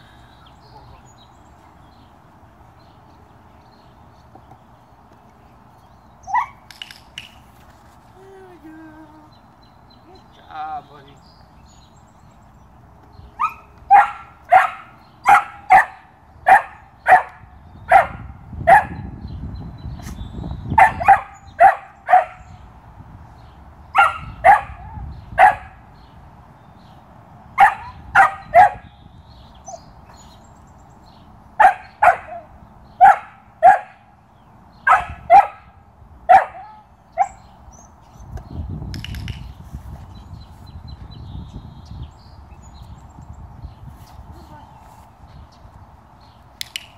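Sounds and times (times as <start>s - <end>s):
puppy barking: 13.4s - 19.0s, 31.6s - 34.0s, 34.9s - 35.7s, 36.3s - 37.4s.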